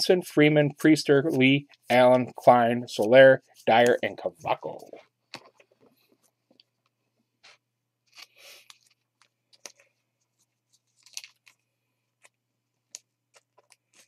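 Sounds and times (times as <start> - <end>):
cards and foil wrappers rustling: 10.6 - 14.0.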